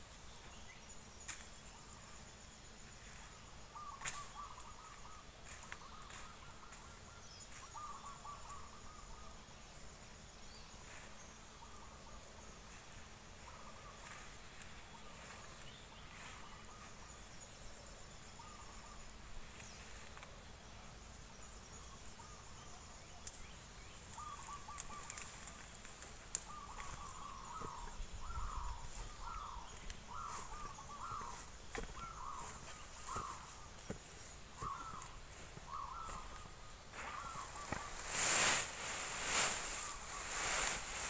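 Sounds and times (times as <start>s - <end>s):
insect buzz: 0.0s - 41.0s
twigs snapping and leaves rustling: 24.1s - 27.8s
bird harsh calls: 26.4s - 41.0s.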